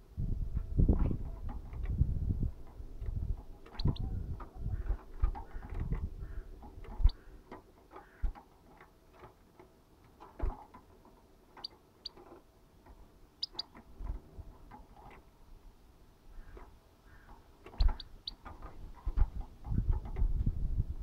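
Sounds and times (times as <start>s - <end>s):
birds pecking seeds: 2.6s - 15.3s, 16.3s - 19.8s
high bird chirps: 3.7s - 4.2s, 13.4s - 13.8s, 17.8s - 18.4s.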